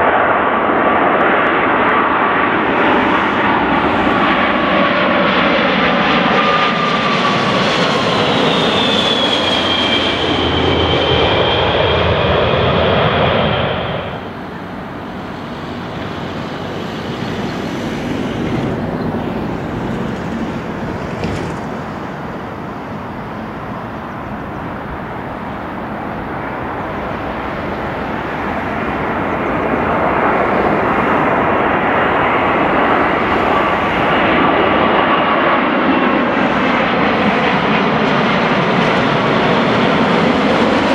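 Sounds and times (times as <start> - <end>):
distant jet plane approaching: 0.0 - 40.9
jet engines whining overhead: 0.0 - 40.9.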